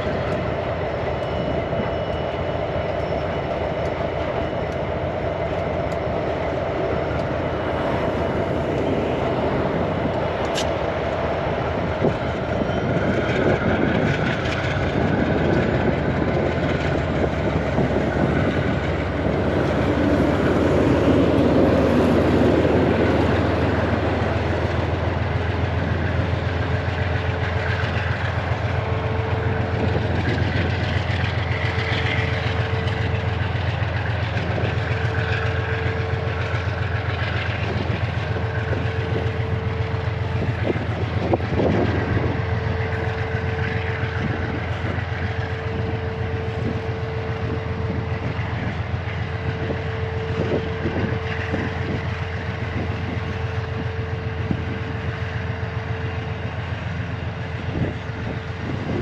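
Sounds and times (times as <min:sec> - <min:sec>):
diesel locomotive engines throbbing: 0:00.0 - 0:59.0.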